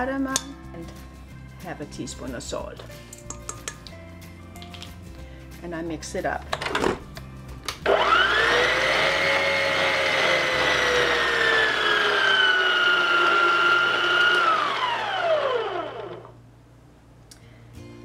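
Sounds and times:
stand mixer motor whine: 7.8s - 16.4s.

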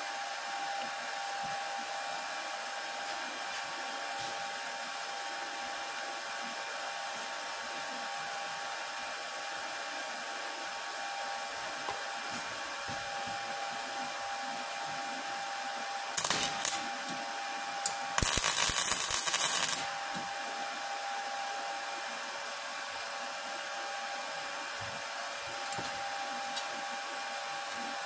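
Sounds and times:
steady machine hum: 0.0s - 28.0s
welder crackling: 16.2s - 17.2s, 17.8s - 20.2s.

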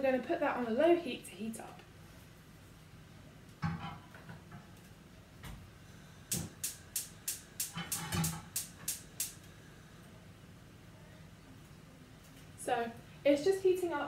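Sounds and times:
spark igniter clicking: 6.3s - 9.4s.

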